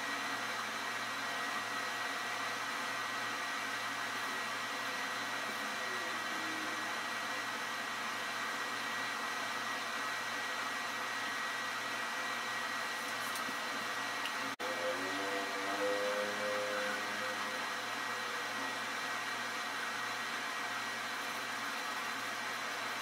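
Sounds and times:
thin high whine: 0.0 - 9.9, 10.6 - 23.0
low hum: 14.5 - 22.3.

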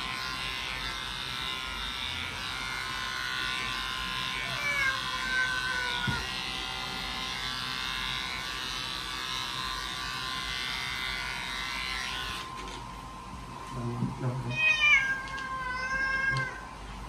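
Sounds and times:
electric clippers buzzing: 0.0 - 13.3.

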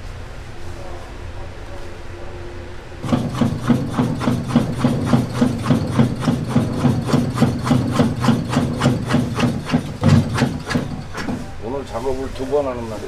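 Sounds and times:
sausage stuffing machine humming: 3.0 - 13.0.

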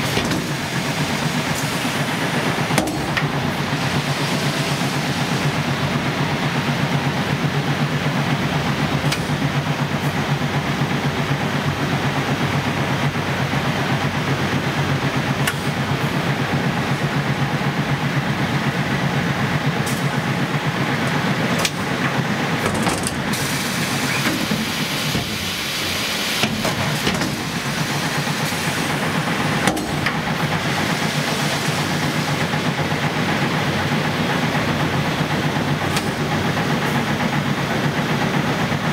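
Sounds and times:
machine drone with low pulsing: 0.0 - 38.9.

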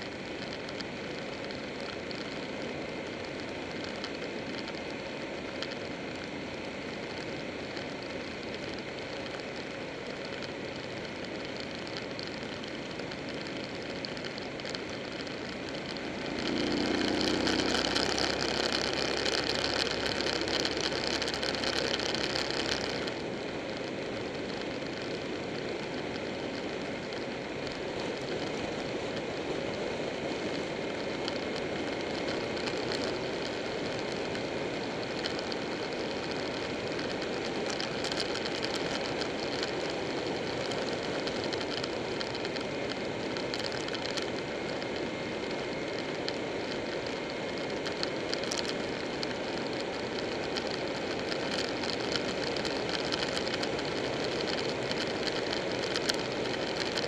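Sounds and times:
wind and road noise: 0.0 - 57.0
motorcycle engine running: 14.9 - 25.5.

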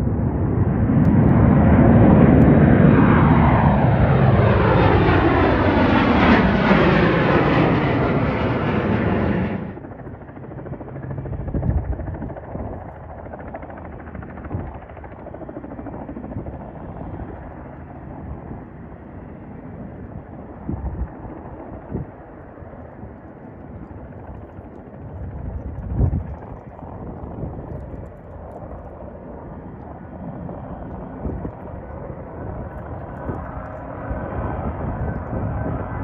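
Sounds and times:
distant aircraft engine rumble: 0.0 - 36.0
loud aircraft: 0.0 - 36.0
wind thumps on microphone: 25.1 - 28.2.

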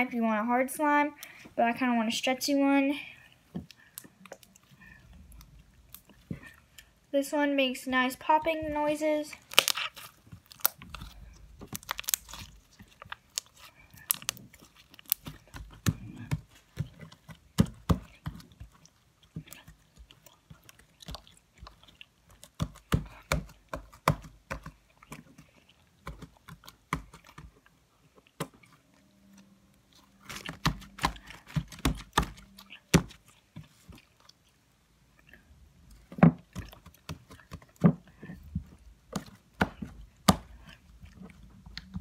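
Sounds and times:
slime squelching with wet pops: 9.4 - 28.8, 30.0 - 42.0.

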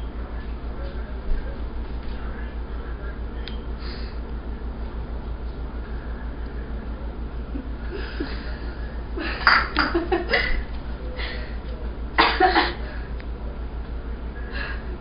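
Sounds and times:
low electrical hum: 0.0 - 15.0.

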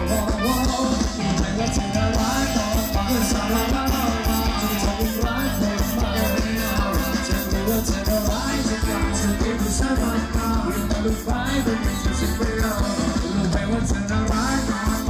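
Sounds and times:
live rock band: 0.0 - 15.0
person singing: 0.0 - 15.0.

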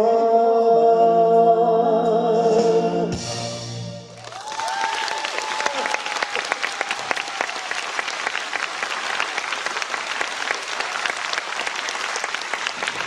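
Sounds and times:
audience applauding: 4.2 - 13.0.

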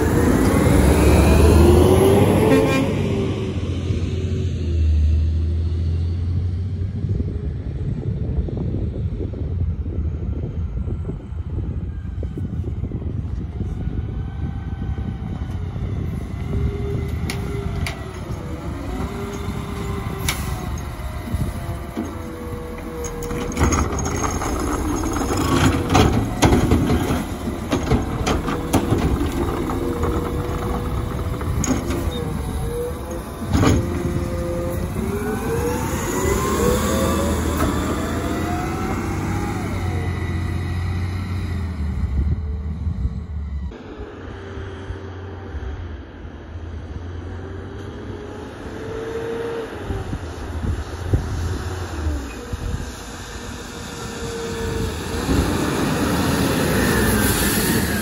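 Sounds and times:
garbage truck engine running: 17.6 - 43.2
knocks and bangs of cart: 23.3 - 32.4.

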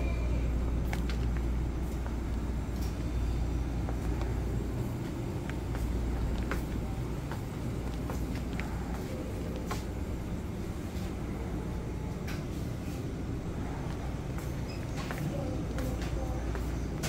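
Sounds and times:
refrigerated display cases humming: 0.0 - 17.0.

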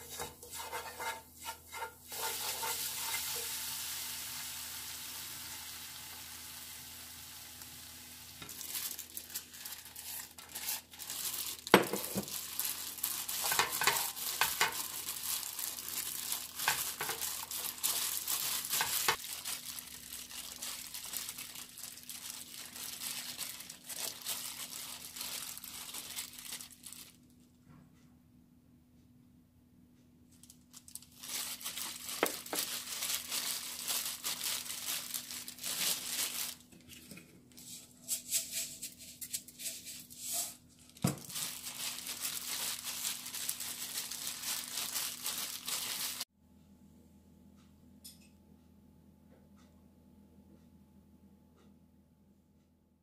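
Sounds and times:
dried squid rustling in a pan: 0.0 - 27.2, 30.3 - 46.3
sauce sizzling in a frying pan: 2.0 - 8.5.

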